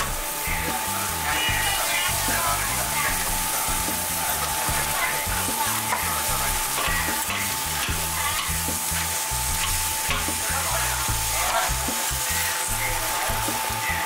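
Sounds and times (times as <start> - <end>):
noodles sizzling on griddle: 0.0 - 14.0
metal spatula scraping and tapping: 5.9 - 10.4.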